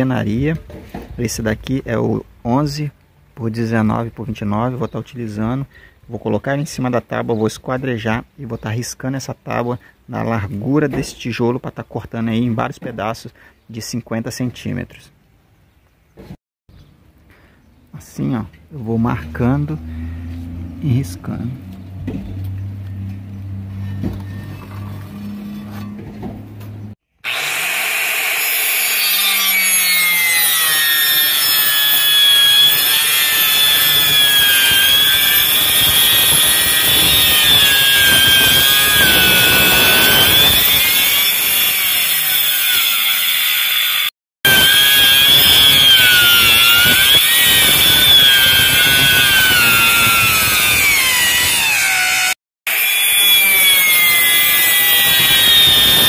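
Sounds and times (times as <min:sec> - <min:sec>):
circular saw cutting wood: 0:27.2 - 0:56.0.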